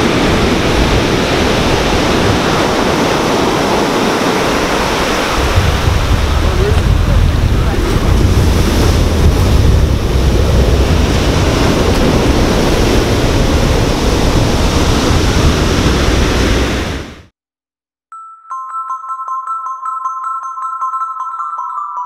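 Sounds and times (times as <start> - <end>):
ocean surf breaking: 0.0 - 17.3.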